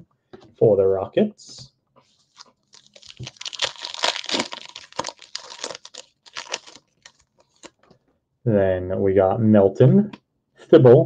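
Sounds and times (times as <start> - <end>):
wrapper tearing and crinkling: 2.3 - 7.8.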